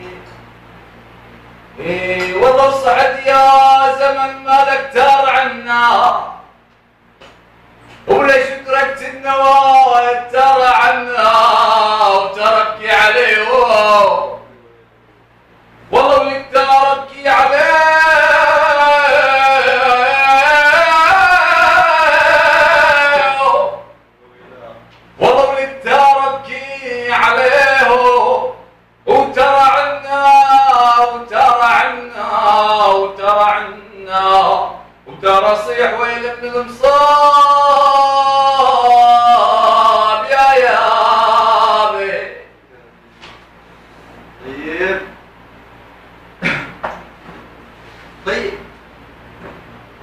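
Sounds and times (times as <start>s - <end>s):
man singing unaccompanied: 1.8s - 6.6s, 8.0s - 14.5s, 15.9s - 24.0s, 25.2s - 42.6s.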